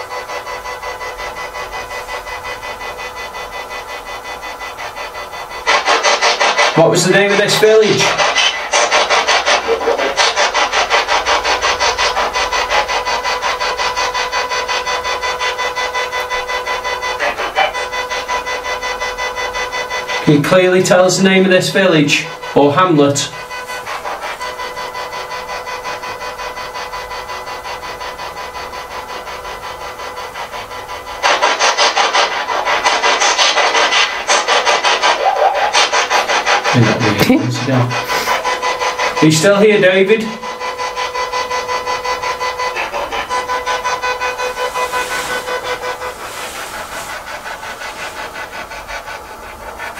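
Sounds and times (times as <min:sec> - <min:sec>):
steady tones: 0:00.0 - 0:26.2, 0:32.3 - 0:49.9
rapid pulsing radio static: 0:00.0 - 0:49.9
steady tone: 0:33.3 - 0:49.9.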